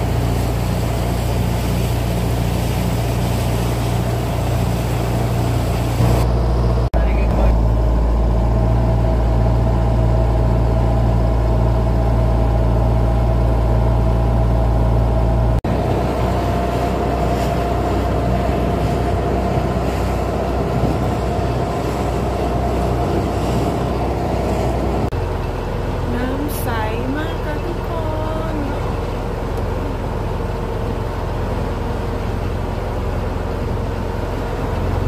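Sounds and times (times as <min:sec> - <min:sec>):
motorboat engine drone: 0:00.0 - 0:35.0
water noise: 0:00.0 - 0:35.0.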